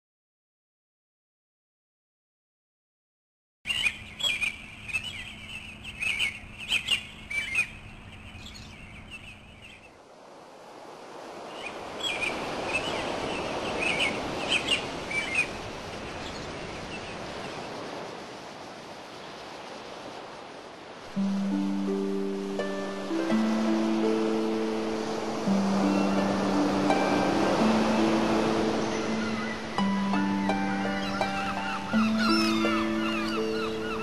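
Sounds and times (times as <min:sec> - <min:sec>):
birds chirping: 0:03.7 - 0:10.0, 0:11.4 - 0:18.0, 0:21.2 - 0:34.0
water rushing: 0:10.0 - 0:34.0
plucked-string music: 0:21.1 - 0:34.0.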